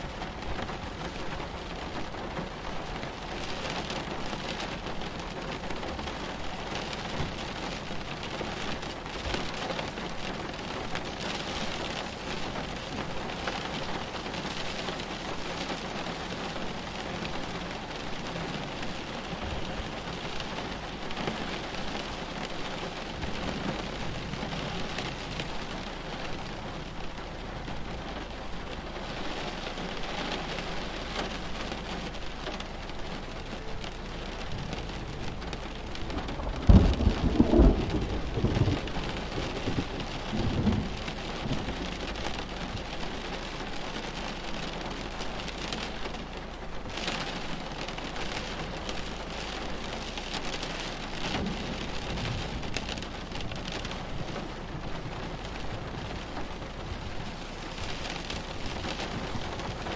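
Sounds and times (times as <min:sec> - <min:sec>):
rain falling: 0:00.0 - 0:59.9
thunderclap rumbling: 0:33.5 - 0:43.3, 0:51.0 - 0:59.9.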